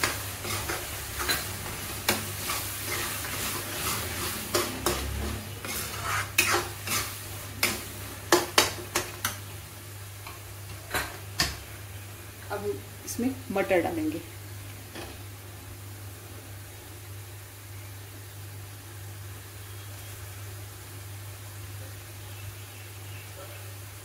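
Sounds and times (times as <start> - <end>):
metal spatula scraping a pan: 0.0 - 7.9
sauce sizzling: 0.0 - 24.0.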